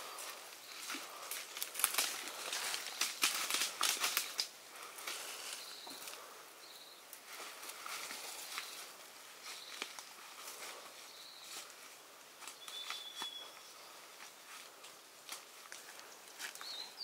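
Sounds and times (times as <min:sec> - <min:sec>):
footsteps on dry leaves: 0:00.0 - 0:06.2, 0:07.2 - 0:17.0
branch brushing through undergrowth: 0:00.1 - 0:06.2, 0:07.2 - 0:13.5.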